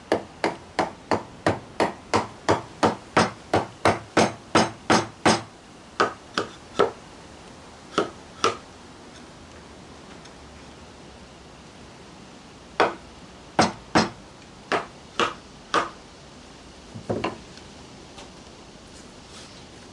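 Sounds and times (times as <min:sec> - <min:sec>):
rubber mallet tapping wood: 0:13.6 - 0:16.0.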